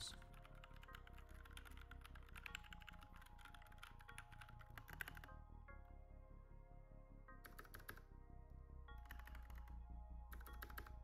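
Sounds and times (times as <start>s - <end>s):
fast typing on a keyboard: 0.0s - 5.3s, 7.4s - 8.0s, 9.0s - 11.0s
background music: 0.0s - 11.0s.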